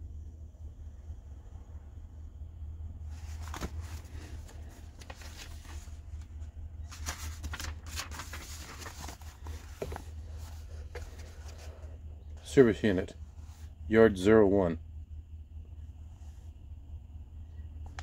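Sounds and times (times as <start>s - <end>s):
low steady hum: 0.0s - 18.0s
paper rustling and crinkling: 3.1s - 12.0s.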